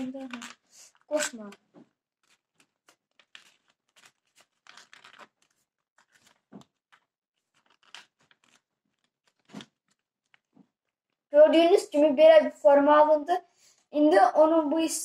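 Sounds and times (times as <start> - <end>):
paper crinkling and rustling: 0.0 - 10.8.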